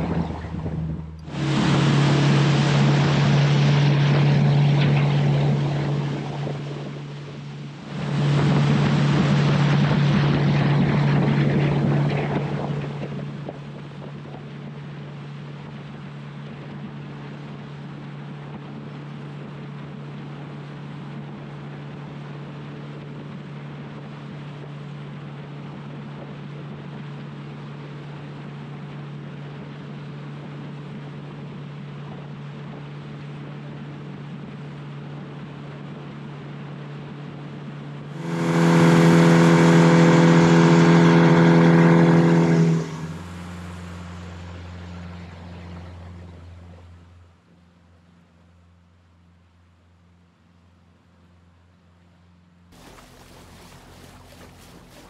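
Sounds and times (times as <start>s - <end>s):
loud rushing noise: 0.0s - 4.8s, 38.2s - 43.9s
boat motor humming: 0.0s - 55.0s.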